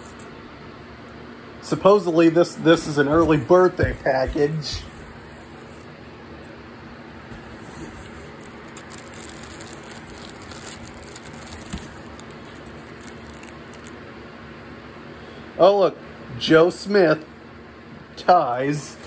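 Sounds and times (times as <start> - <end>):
plastic packaging rustling: 7.2 - 14.0.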